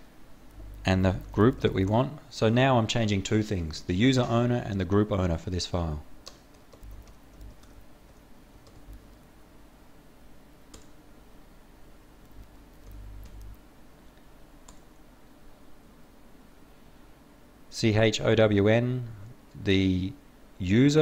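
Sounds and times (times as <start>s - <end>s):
keyboard typing: 0.5s - 2.0s, 6.2s - 9.2s, 12.2s - 13.6s.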